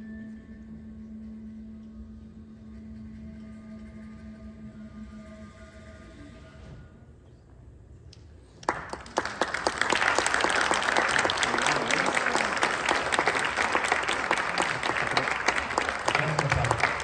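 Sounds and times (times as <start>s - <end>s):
audience applause: 8.6s - 17.0s.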